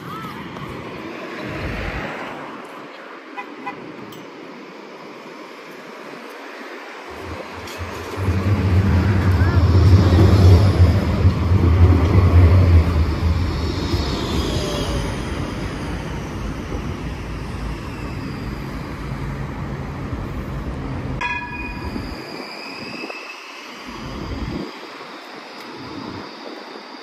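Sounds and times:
tram electric hum: 0.0s - 27.0s
tram whining and wheel squeal: 6.5s - 27.0s
tram bell ding: 21.2s - 22.7s.

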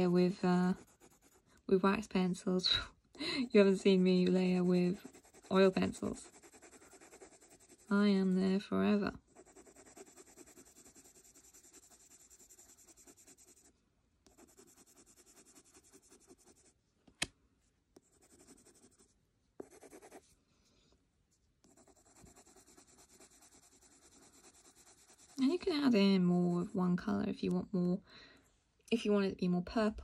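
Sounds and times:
coloured pencil scribbling on paper: 0.0s - 1.4s, 3.4s - 8.6s, 9.2s - 16.7s, 18.0s - 20.2s, 21.6s - 26.8s.

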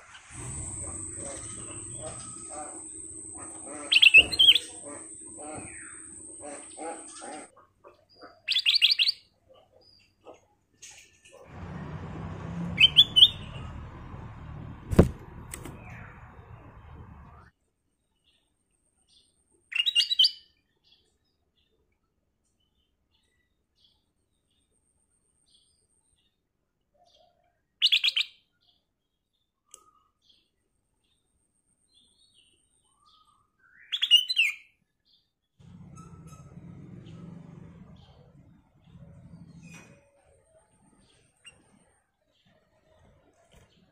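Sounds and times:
bird chirping: 0.4s - 7.5s, 11.5s - 17.5s
bird whistling rising notes: 0.4s - 7.5s, 12.2s - 17.4s
sharp knock: 14.8s - 16.0s.

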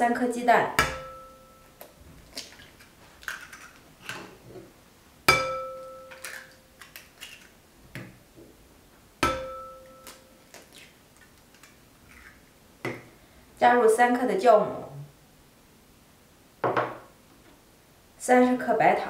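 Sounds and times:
bowl ringing: 0.9s - 1.8s, 5.3s - 6.6s, 9.2s - 10.4s
eggs cracked on porcelain bowl: 5.3s - 7.6s.

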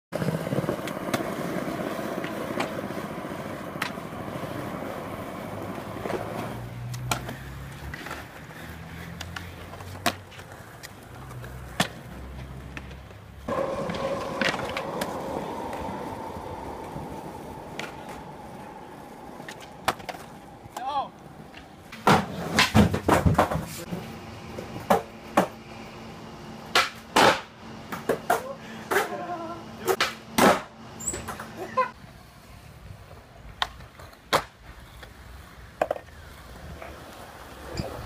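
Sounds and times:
skateboard wheels rolling on concrete: 0.1s - 38.0s
skateboard trucks grinding on concrete: 0.2s - 38.0s
skateboard clacks popping and landing: 19.4s - 23.8s, 26.7s - 29.2s, 29.9s - 30.7s, 33.6s - 35.2s, 35.8s - 36.2s.

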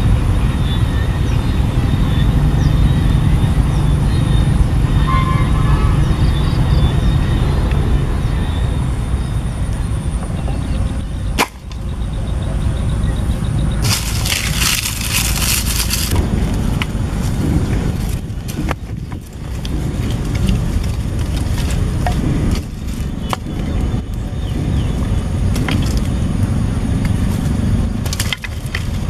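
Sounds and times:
wind on microphone: 0.0s - 29.0s
twigs crackling and snapping: 11.4s - 11.9s, 13.8s - 24.2s, 25.4s - 26.2s, 27.0s - 29.0s.

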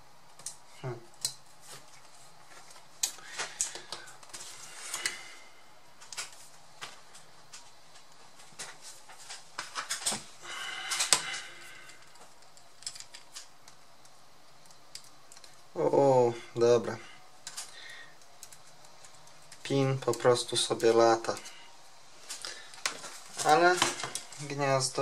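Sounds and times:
laptop parts clicking and scraping: 10.9s - 15.7s, 17.4s - 21.6s.

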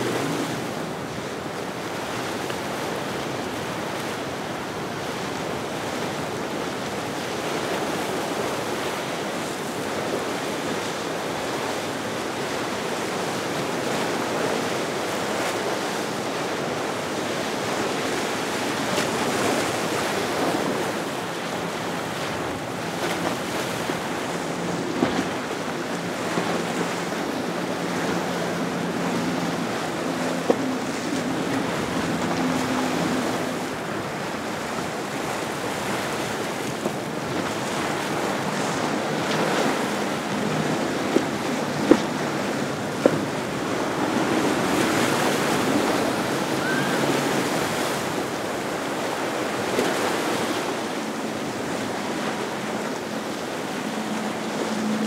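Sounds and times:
breaking surf: 0.0s - 55.0s
faint engine drone: 18.6s - 55.0s.

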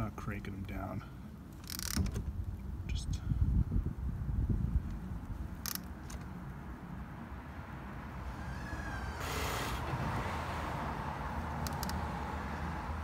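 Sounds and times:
wrench clicking: 1.6s - 2.0s, 5.6s - 5.9s, 11.6s - 12.0s
brief rush of noise: 8.3s - 10.8s.

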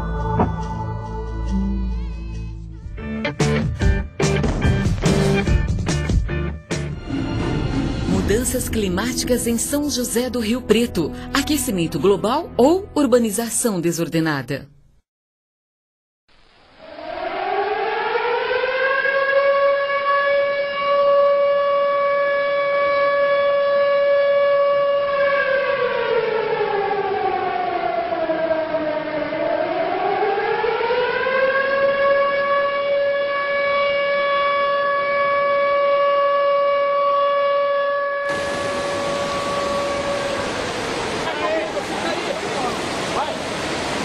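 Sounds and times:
siren wailing: 16.8s - 41.9s.

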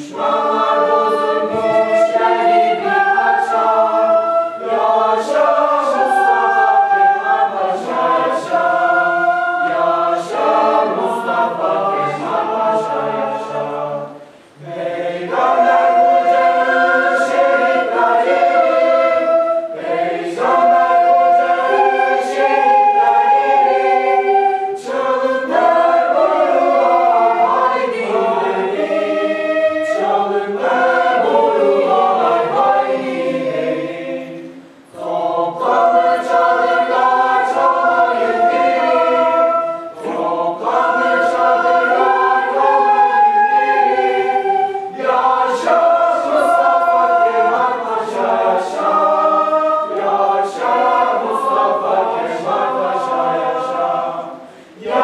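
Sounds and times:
choir singing a march: 0.0s - 55.0s.

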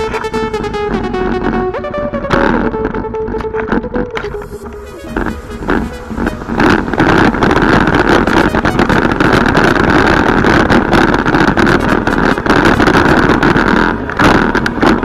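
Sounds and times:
wind rushing over microphone: 4.4s - 15.0s
bike rattling over bumps: 13.4s - 15.0s.

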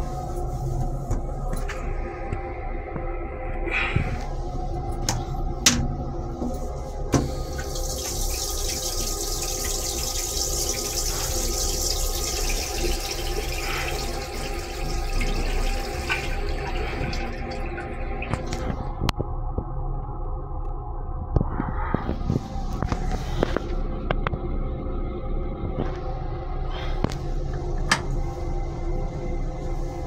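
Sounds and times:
steady background hum: 0.0s - 30.0s
toilet flush water rushing: 7.1s - 19.0s.

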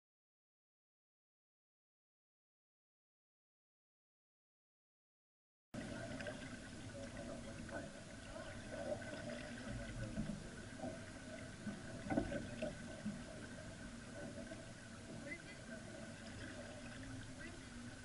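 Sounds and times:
faint steady hum: 5.8s - 18.0s
water splashing along hull: 5.8s - 18.0s.

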